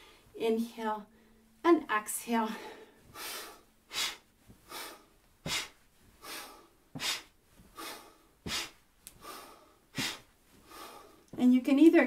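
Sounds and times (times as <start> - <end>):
woman breathing hard: 2.5 - 11.3.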